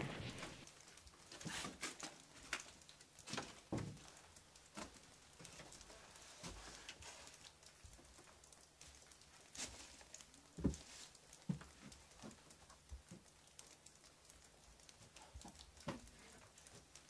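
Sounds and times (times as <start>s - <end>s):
faint footsteps: 0.0s - 0.6s.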